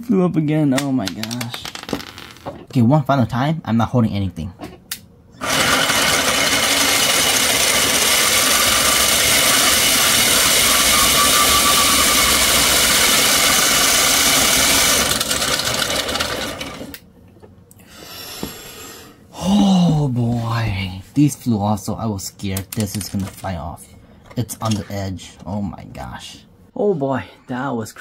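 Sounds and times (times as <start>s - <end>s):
gearbox whirring rattle: 5.4s - 17.0s.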